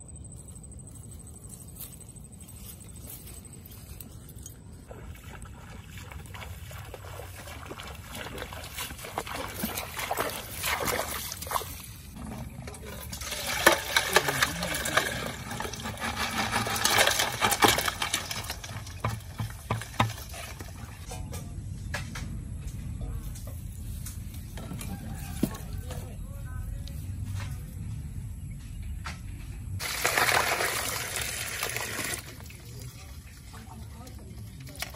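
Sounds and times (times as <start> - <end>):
water sloshing into metal basin: 4.4 - 21.4, 29.8 - 34.9.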